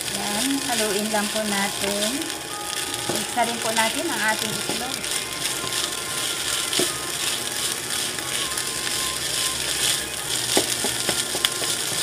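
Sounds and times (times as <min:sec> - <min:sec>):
rice sizzling in a pan: 0:00.0 - 0:12.0
spatula scraping a pan: 0:03.1 - 0:12.0.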